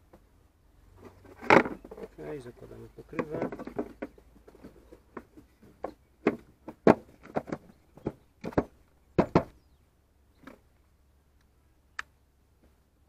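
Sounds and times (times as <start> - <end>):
plastic knocks and clunks: 1.0 - 2.2, 3.0 - 9.6.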